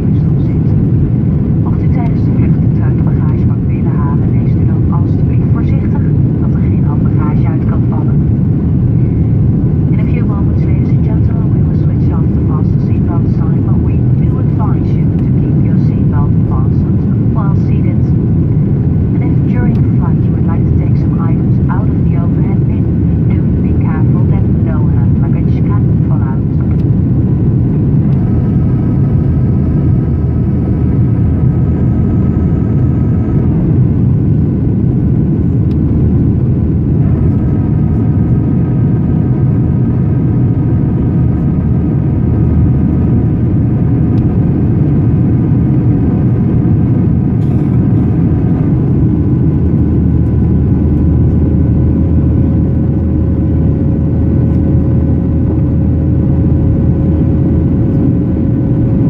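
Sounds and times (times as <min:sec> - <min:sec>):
faint whining engine tones: 0:00.0 - 0:59.0
jet engine roar in cabin: 0:00.0 - 0:59.0.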